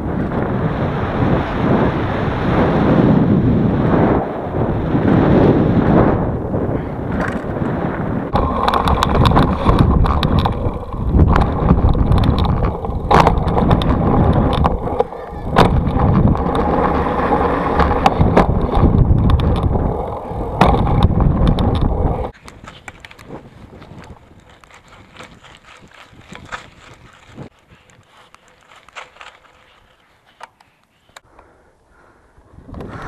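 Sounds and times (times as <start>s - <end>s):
wind buffeting microphone: 0.0s - 29.9s, 32.4s - 33.0s
bike knocking and rattling: 7.1s - 31.2s
tyres rumbling on dirt: 7.5s - 22.4s.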